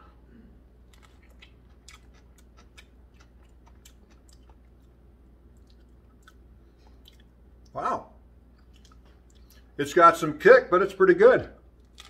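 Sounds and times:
person chewing crunchy food: 0:00.8 - 0:07.7, 0:08.5 - 0:09.8, 0:11.8 - 0:12.0.

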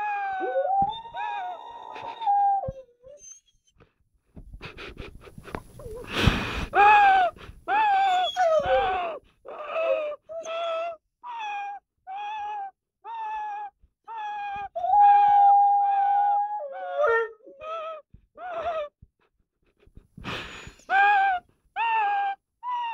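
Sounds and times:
dog howling: 0:00.0 - 0:03.4, 0:06.8 - 0:18.8
dog breathy huff: 0:04.6 - 0:07.7, 0:20.0 - 0:20.9.

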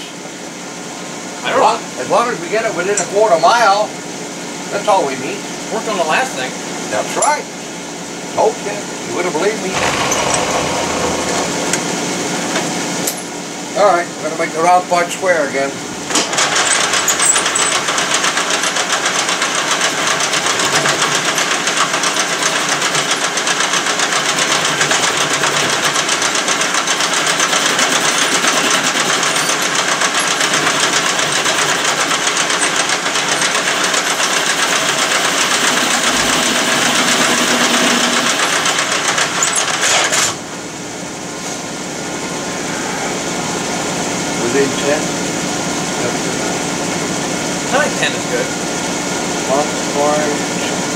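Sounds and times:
machine hum: 0:09.5 - 0:13.8, 0:27.3 - 0:39.8
metal lathe cutting: 0:09.7 - 0:12.0, 0:21.5 - 0:40.2.

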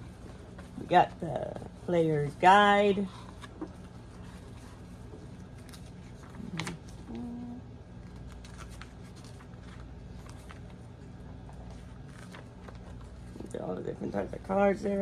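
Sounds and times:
low hum from voice: 0:00.0 - 0:15.0
paper rustling: 0:03.1 - 0:07.3, 0:07.9 - 0:15.0.

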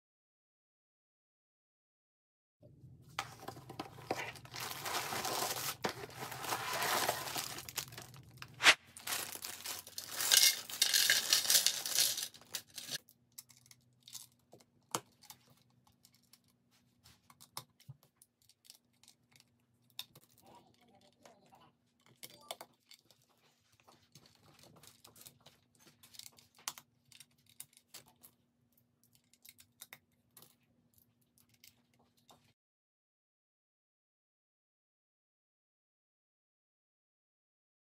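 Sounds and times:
packaging tearing and crinkling: 0:04.0 - 0:13.0
plastic bricks clicking: 0:09.1 - 0:14.3.

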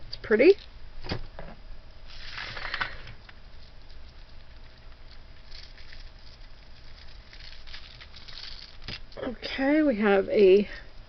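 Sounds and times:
jewelry clicking and rattling: 0:05.4 - 0:09.0.

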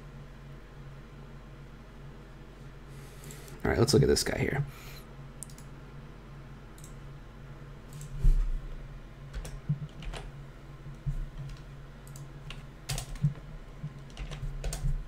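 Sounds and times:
faint low hum: 0:00.0 - 0:15.0
keyboard and mouse clicks: 0:05.4 - 0:05.7, 0:06.8 - 0:07.0, 0:11.0 - 0:15.0.

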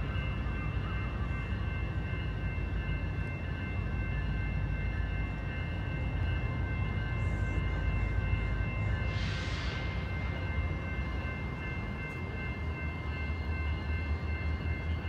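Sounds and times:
distant train rumble: 0:00.0 - 0:15.0.

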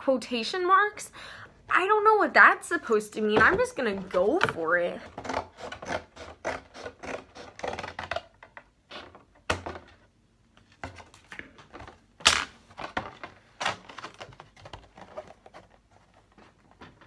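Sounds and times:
cardboard being handled: 0:12.7 - 0:17.0.

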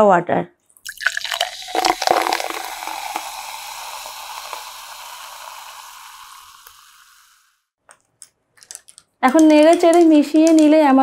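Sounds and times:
soda water fizzing over ice: 0:00.8 - 0:07.6.

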